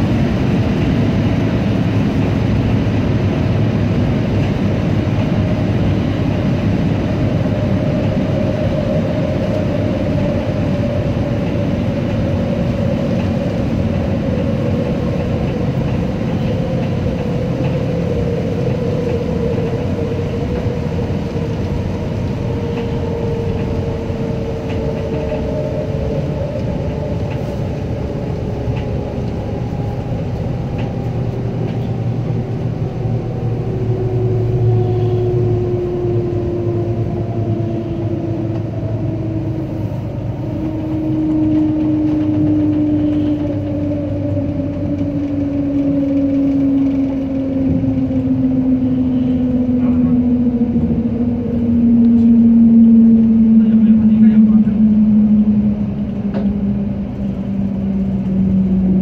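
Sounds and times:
maglev train rumble and rushing: 0:00.0 - 0:59.0
falling whining tones: 0:07.1 - 0:59.0.

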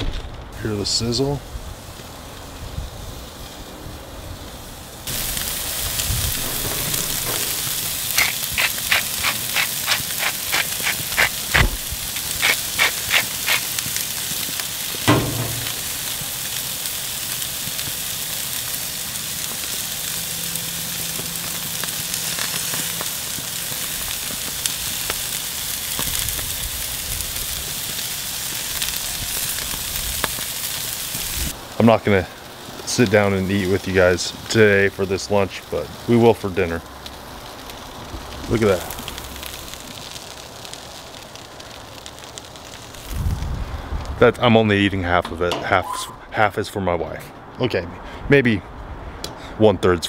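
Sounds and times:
steaks sizzling on a grill: 0:00.6 - 0:44.0
loud clack with low thump: 0:15.1 - 0:15.9.

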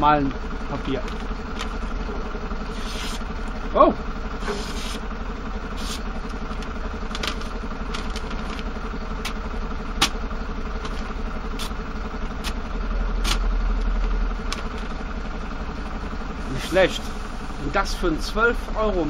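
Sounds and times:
construction machinery engine drone: 0:00.0 - 0:19.0.

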